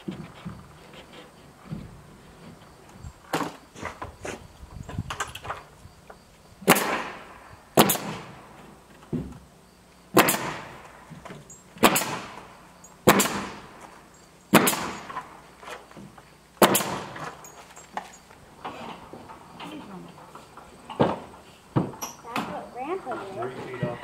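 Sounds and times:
nail gun shots with hiss: 6.6 - 8.5, 10.1 - 11.0, 11.8 - 13.8, 14.5 - 15.4, 16.6 - 17.4.

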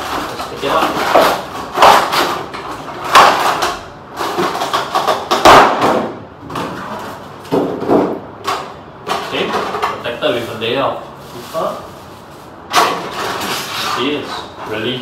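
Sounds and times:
plastic wrapping rustling: 0.0 - 5.2, 9.1 - 15.0.

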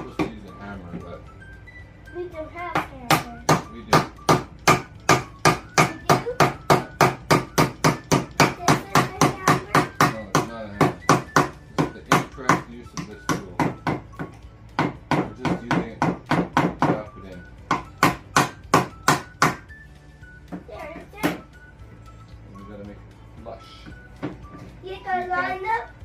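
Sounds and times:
hammer tapping wood: 0.0 - 0.4, 2.7 - 19.7, 23.8 - 24.6.

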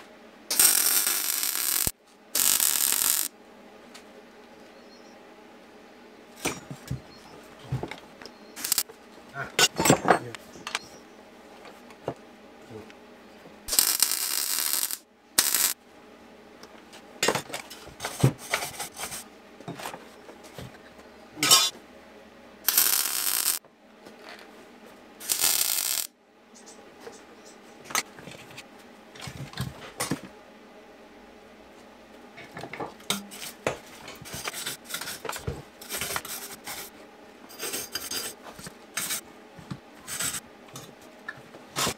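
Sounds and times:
electric arc welding bursts: 0.5 - 3.3, 8.6 - 8.8, 13.7 - 15.8, 22.7 - 23.6, 25.2 - 26.1.

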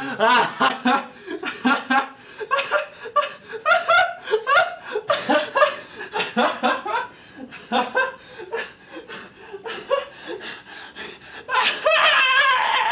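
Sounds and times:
young man chuckling: 0.0 - 10.1.

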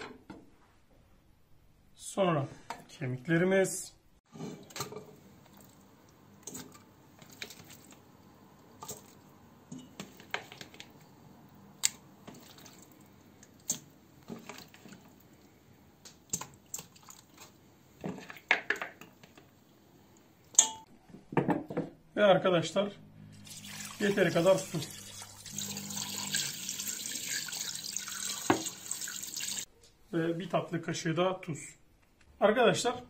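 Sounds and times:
bones clinking in metal pot: 20.5 - 20.9.

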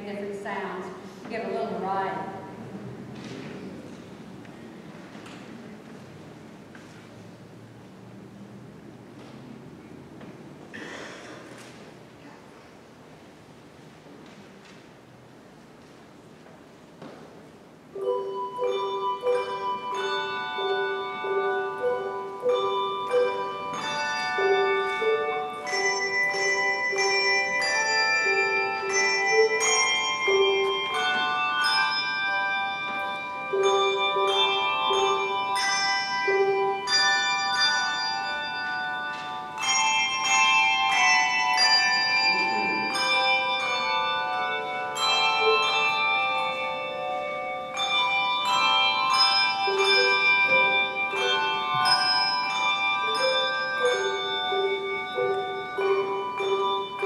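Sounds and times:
handbell choir playing: 17.9 - 57.0.

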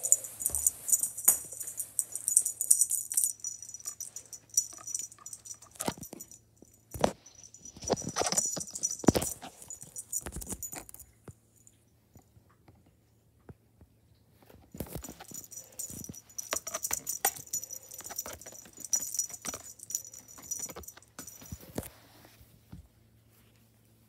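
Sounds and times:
small bell jingling: 0.0 - 11.1, 14.9 - 21.9.

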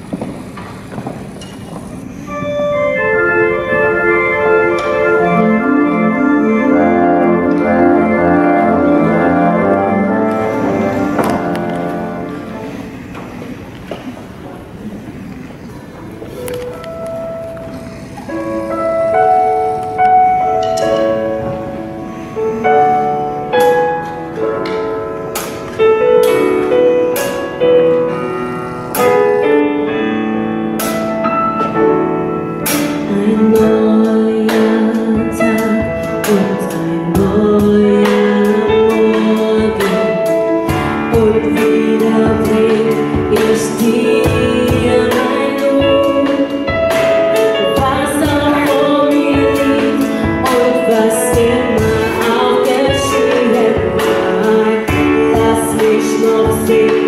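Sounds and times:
keyboard accompaniment: 0.0 - 57.0
women singing in harmony: 33.0 - 46.7, 47.6 - 57.0.

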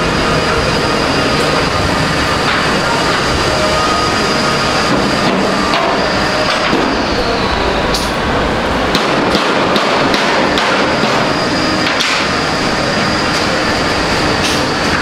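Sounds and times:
faint high whine: 0.0 - 8.8
vehicle running noise: 0.0 - 15.0.

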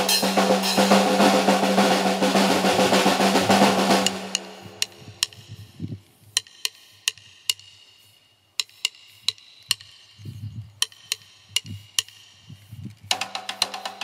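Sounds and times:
drumstick striking small cymbal: 0.0 - 5.6, 6.4 - 10.1, 13.1 - 14.0.

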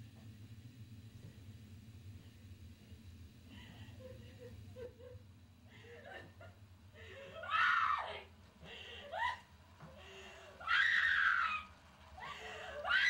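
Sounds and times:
steady low hum: 0.0 - 13.0
woman screaming and whimpering: 7.2 - 8.3.

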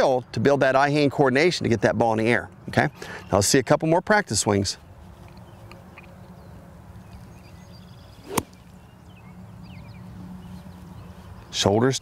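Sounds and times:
golf club swing whoosh: 8.2 - 8.8.

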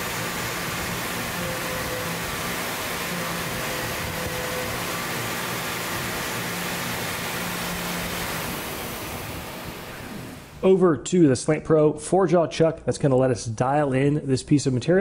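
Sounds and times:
cnc mill cutting aluminium: 0.0 - 10.5.

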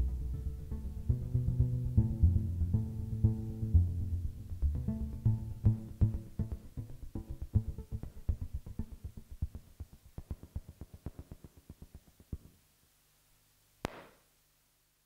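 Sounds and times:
faint low hum: 0.0 - 15.0.

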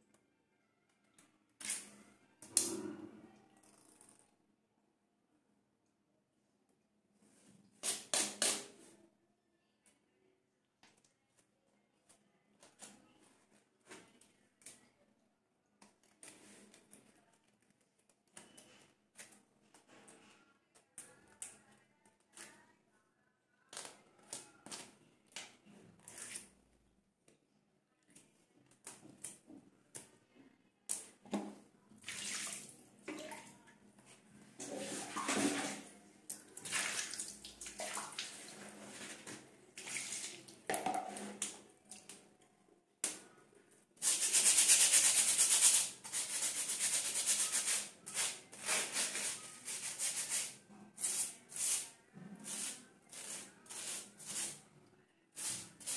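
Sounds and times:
water pouring and splashing: 34.6 - 35.9.

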